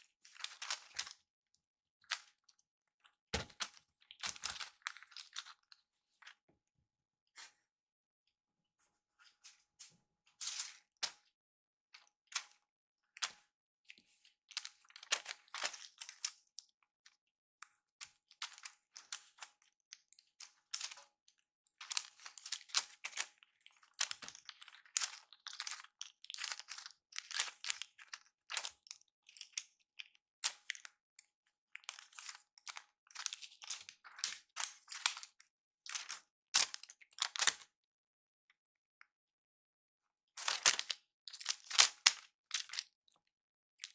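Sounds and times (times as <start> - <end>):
plastic toy crinkling and clicking: 0.2 - 1.2, 2.0 - 6.4, 13.2 - 37.8, 40.4 - 43.9.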